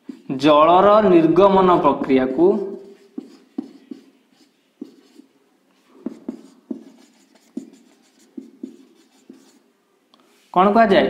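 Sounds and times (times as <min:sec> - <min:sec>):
marker pen scratching on whiteboard: 0:00.0 - 0:00.4, 0:01.6 - 0:09.6.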